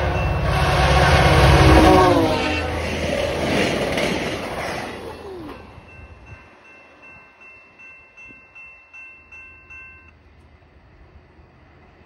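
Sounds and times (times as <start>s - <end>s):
passing train: 0.0s - 12.0s
level crossing bell ringing: 5.5s - 10.1s.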